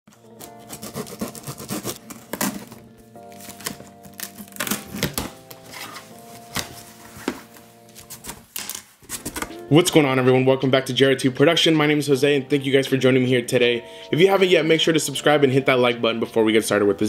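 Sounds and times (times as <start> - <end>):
background music with held chords: 0.1 - 8.6, 9.2 - 17.0
packing tape peeling: 0.1 - 9.5
cardboard flaps opening: 0.2 - 9.6.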